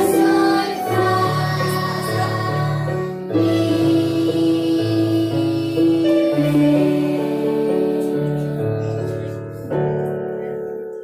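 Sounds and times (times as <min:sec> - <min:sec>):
electronic keyboards playing piano piece: 0:00.0 - 0:11.0.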